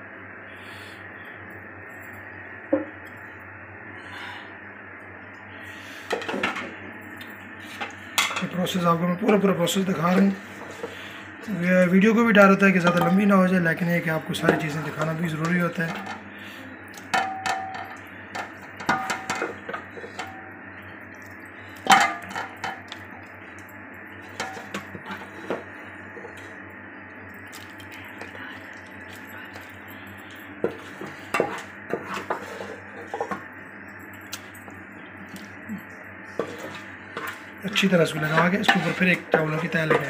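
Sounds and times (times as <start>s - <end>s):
spoon scraping metal pot: 36.4s - 40.0s.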